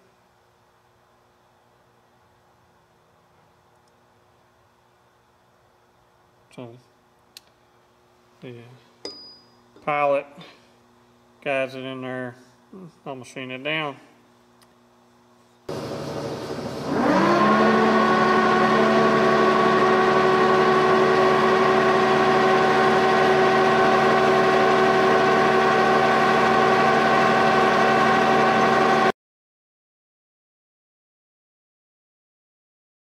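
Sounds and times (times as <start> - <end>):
machine hum: 9.7 - 29.1
milling spindle whine: 15.7 - 29.1.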